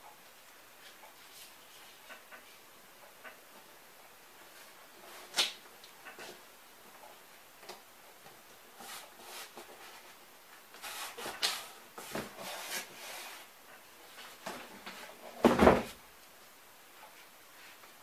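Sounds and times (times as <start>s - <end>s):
cardboard unit thump: 15.4s - 16.0s.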